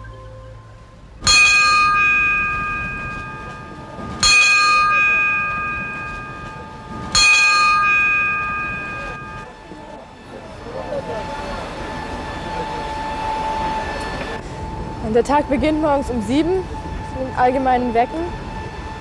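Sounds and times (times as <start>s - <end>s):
bell ringing: 1.2s - 9.5s.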